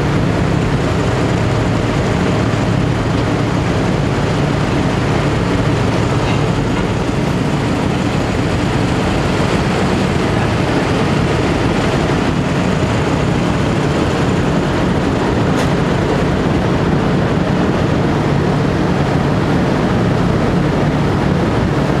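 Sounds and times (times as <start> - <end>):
diesel engine drone: 0.0 - 22.0
rushing water and wind: 0.0 - 22.0.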